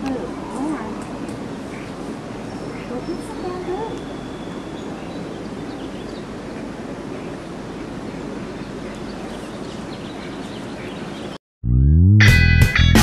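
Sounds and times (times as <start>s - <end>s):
steady outdoor rushing noise: 0.0s - 11.4s
faint high chirps: 3.8s - 6.0s.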